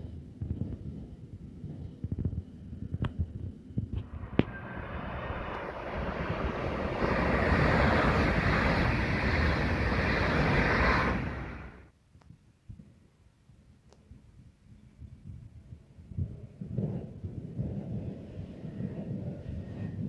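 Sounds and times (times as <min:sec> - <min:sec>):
train rushing past: 0:04.0 - 0:11.9.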